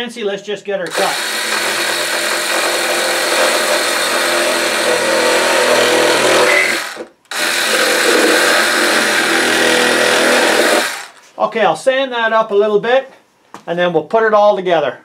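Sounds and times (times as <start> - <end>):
reciprocating saw cutting plastic pipe: 0.9 - 11.3.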